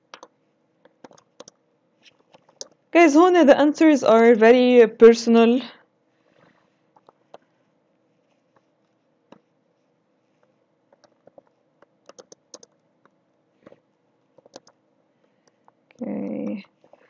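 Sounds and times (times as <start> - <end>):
computer keyboard keystrokes: 0.1 - 2.8, 10.9 - 12.8, 14.4 - 14.8.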